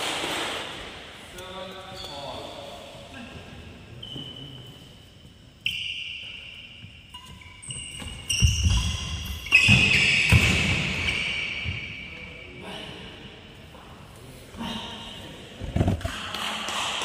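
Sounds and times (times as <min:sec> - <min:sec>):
shoes squeaking on floor: 0:01.7 - 0:03.0, 0:03.9 - 0:12.0.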